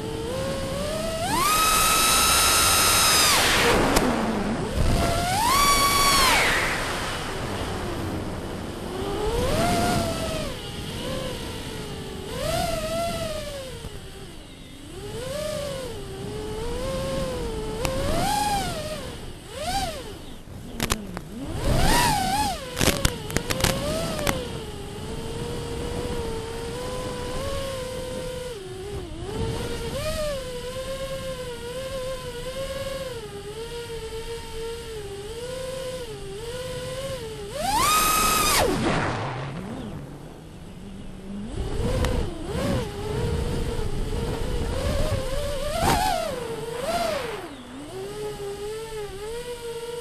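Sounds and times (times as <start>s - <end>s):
drone motors whining: 0.0s - 50.0s
sharp crackling clicks: 20.7s - 24.5s.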